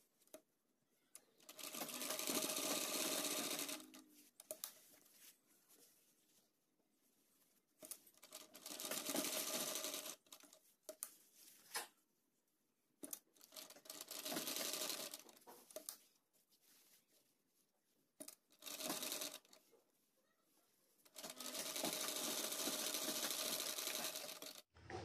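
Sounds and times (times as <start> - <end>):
sewing machine stitching: 1.4 - 4.1, 7.8 - 10.6, 13.4 - 15.9, 18.3 - 19.6, 21.0 - 25.0
small clicks: 4.4 - 4.8.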